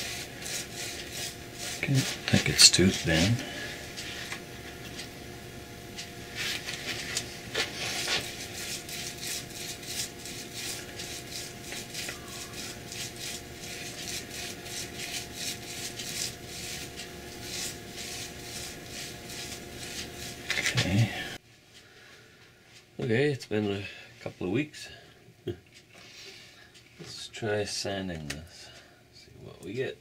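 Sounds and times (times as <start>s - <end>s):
paintbrush strokes on wood: 0.0s - 4.3s, 6.3s - 21.4s
faint steady hum: 0.0s - 30.0s.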